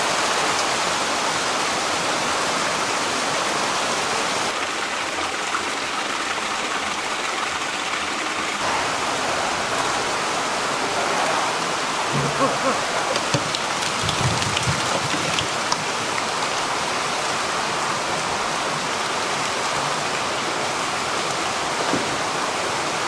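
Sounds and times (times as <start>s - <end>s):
water pouring into tank: 13.0s - 16.7s.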